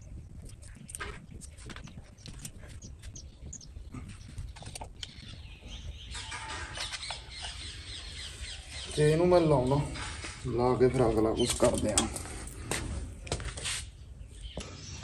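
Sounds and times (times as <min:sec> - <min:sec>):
clicks and rustles of handled wires: 0:00.3 - 0:07.2, 0:10.0 - 0:13.8.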